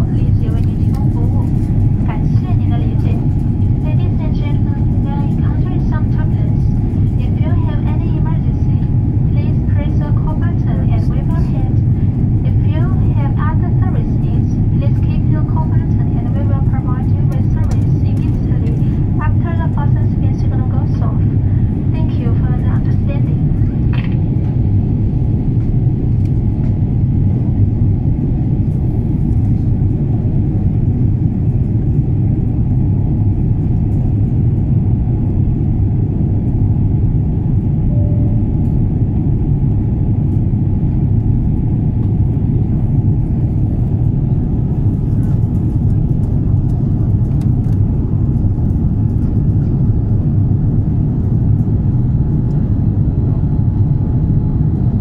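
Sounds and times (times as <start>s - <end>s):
aircraft cabin engine rumble: 0.0s - 55.0s
faint steady hum: 36.4s - 55.0s.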